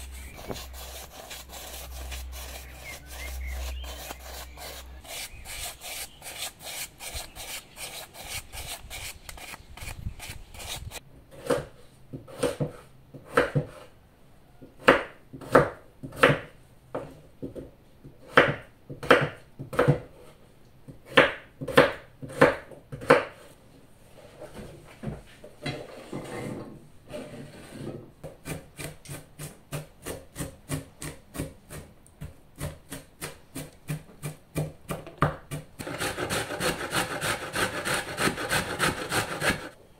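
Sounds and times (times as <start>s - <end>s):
paintbrush scrubbing on brick: 0.0s - 11.0s, 35.8s - 39.8s
knife chopping on wooden board: 11.4s - 13.8s, 14.8s - 17.1s.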